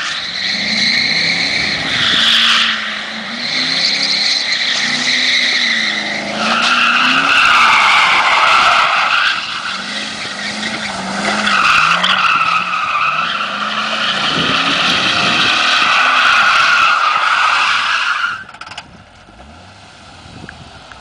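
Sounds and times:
car engine revving: 0.0s - 17.6s
tyres squealing: 3.3s - 18.8s.

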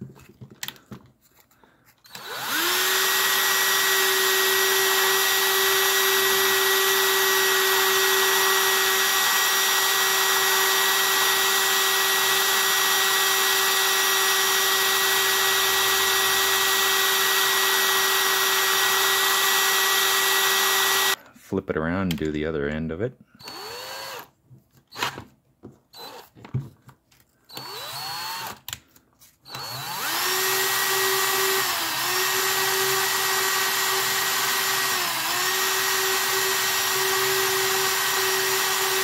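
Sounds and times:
cordless drill whining: 2.0s - 21.2s, 23.4s - 24.3s, 24.9s - 25.3s, 25.9s - 26.4s, 27.5s - 28.8s, 29.4s - 39.0s.

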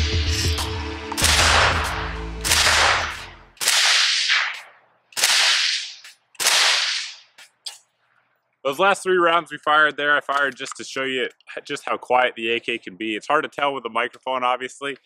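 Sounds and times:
electronic music: 0.0s - 3.6s
suppressed rifle shots: 1.2s - 7.2s.

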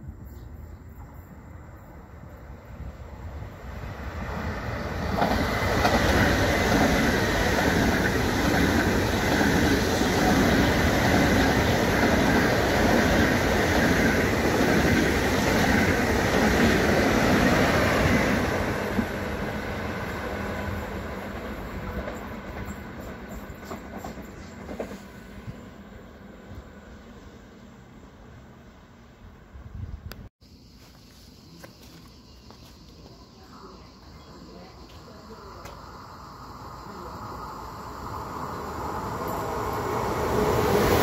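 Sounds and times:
electric train passing: 0.0s - 30.6s, 31.9s - 41.0s.

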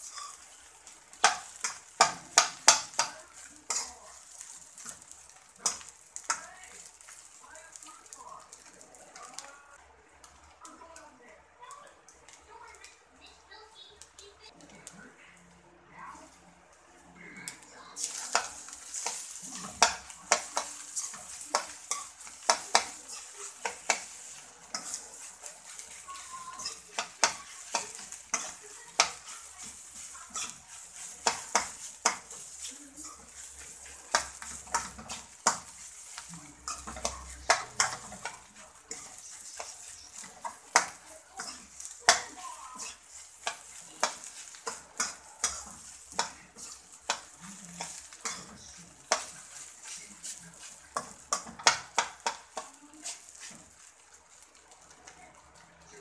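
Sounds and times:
metal spatula scraping pan: 0.0s - 7.8s, 18.0s - 54.1s
frying sizzle: 0.0s - 56.0s.

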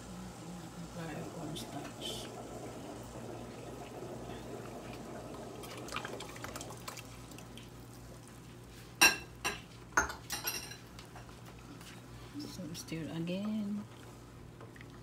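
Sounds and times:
liquid pouring into pot: 1.7s - 8.0s.

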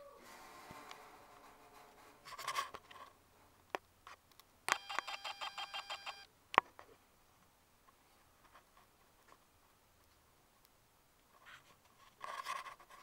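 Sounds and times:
short electronic beeps: 4.7s - 6.3s.

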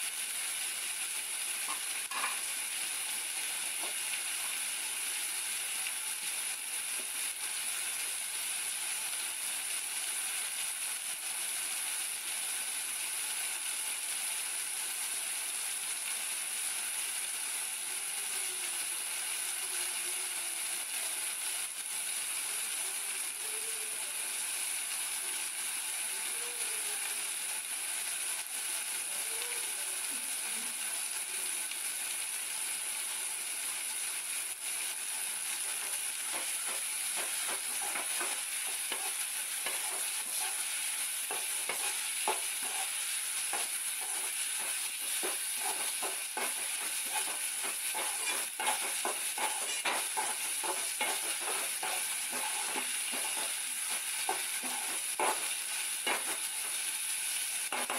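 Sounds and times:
food sizzling in a pan: 0.0s - 57.9s.

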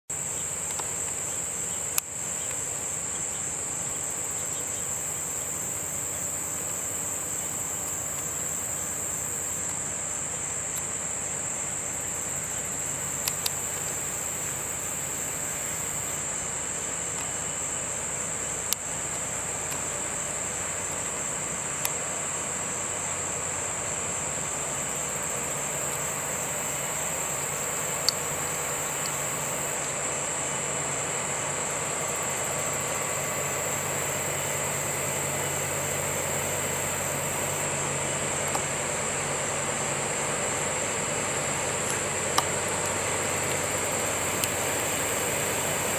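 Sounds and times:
faint low boat engine drone: 0.1s - 45.9s
high-pitched insect chorus: 0.1s - 45.9s
sharp clicks: 13.2s - 14.0s.

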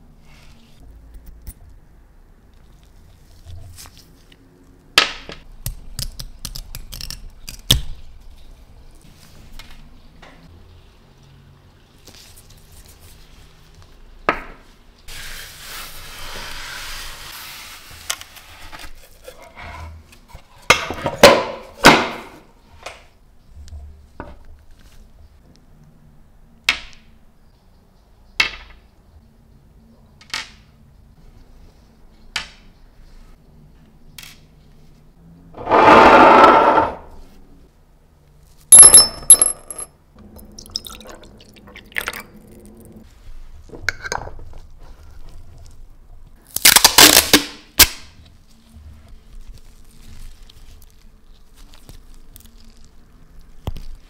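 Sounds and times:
masking tape ripped off roll: 46.5s - 48.1s
rustling through packing fibre: 48.2s - 54.0s.

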